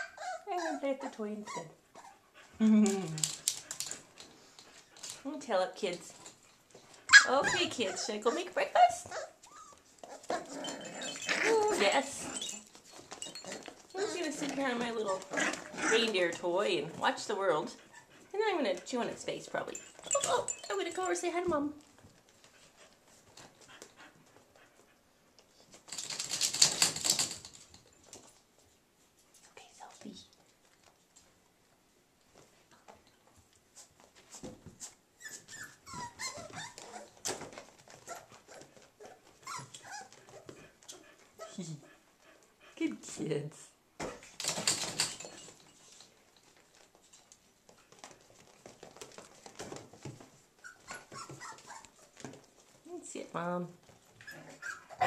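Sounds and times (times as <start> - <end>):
puppies scuffling on towel: 6.0 - 27.2, 28.0 - 41.6, 45.6 - 55.0
puppy claws scrabbling: 25.7 - 28.4.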